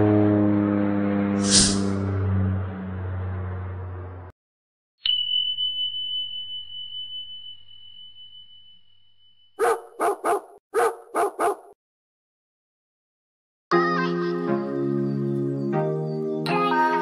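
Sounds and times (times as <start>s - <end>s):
high chime ringing: 5.0s - 9.6s
dog barking: 9.6s - 11.8s.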